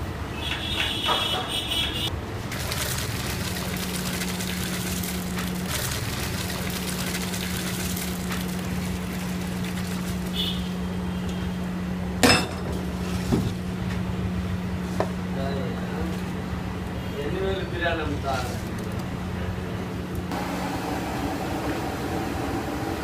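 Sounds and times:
metallic clang: 0:12.2 - 0:12.8.

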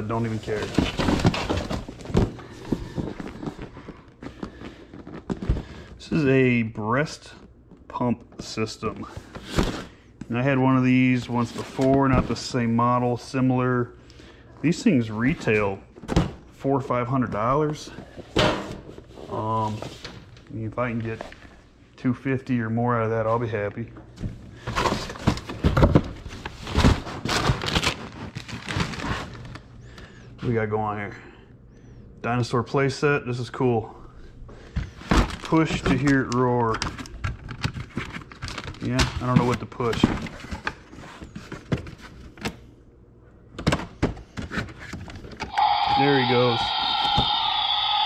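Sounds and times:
cardboard packaging rustling and scraping: 0:00.0 - 0:05.8, 0:11.3 - 0:12.6, 0:24.6 - 0:29.6, 0:37.6 - 0:42.4
electronic toy roar: 0:45.5 - 0:48.0.

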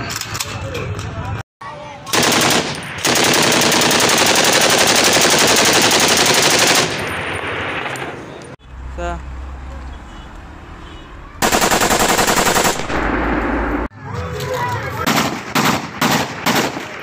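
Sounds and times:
machine gun firing bursts: 0:02.1 - 0:07.0, 0:11.4 - 0:13.0, 0:15.1 - 0:16.8.

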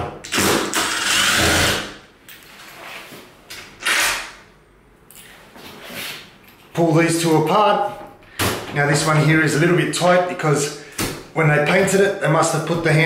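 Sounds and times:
cordless impact driver running: 0:00.3 - 0:01.9.

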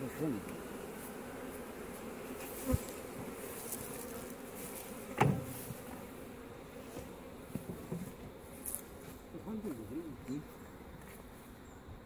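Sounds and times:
honeybees buzzing: 0:00.0 - 0:12.0
thump: 0:05.2 - 0:05.8.

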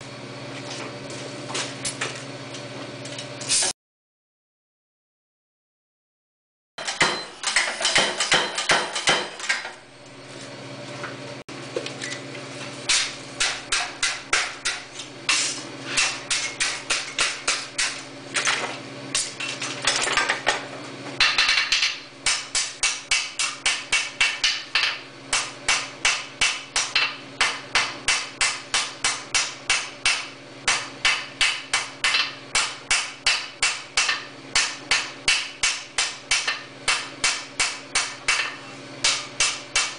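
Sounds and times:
hand hammer striking anvil: 0:06.8 - 0:09.7.

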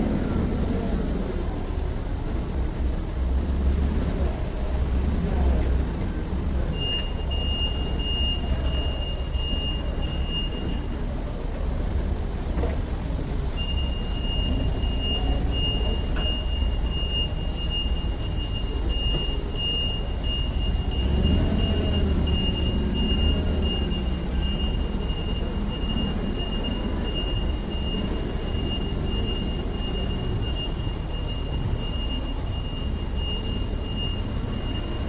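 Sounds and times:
forklift engine running: 0:00.0 - 0:35.0
reverse alarm warning tone: 0:06.7 - 0:11.1, 0:13.6 - 0:35.0.

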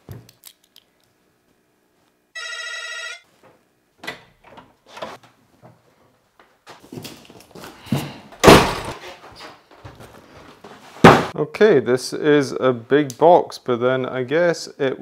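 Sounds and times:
doorbell buzzer: 0:02.4 - 0:03.3.

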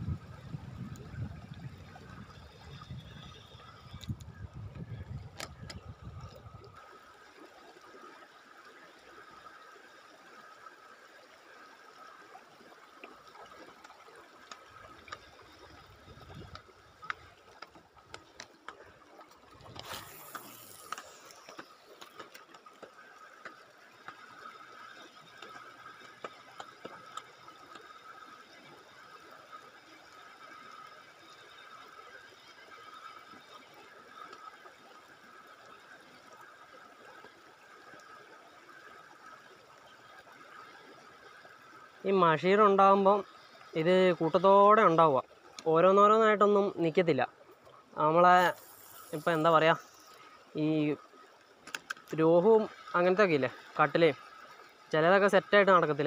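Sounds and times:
flowing river water: 0:00.0 - 0:56.0
fishing reel clicking: 0:05.3 - 0:06.4, 0:19.1 - 0:29.2, 0:48.3 - 0:50.8.

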